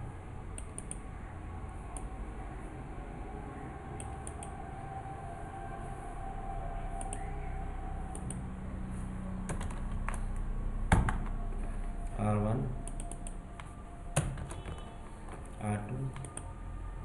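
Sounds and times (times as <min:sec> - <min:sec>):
low hum: 0:00.0 - 0:17.0
keyboard and mouse clicks: 0:00.6 - 0:01.0, 0:07.0 - 0:07.2, 0:09.5 - 0:10.2, 0:12.8 - 0:16.5.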